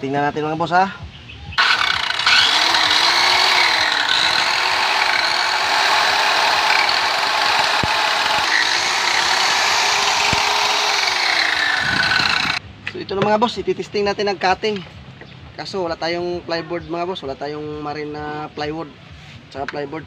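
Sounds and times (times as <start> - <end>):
circular saw motor whine: 1.6 - 12.6.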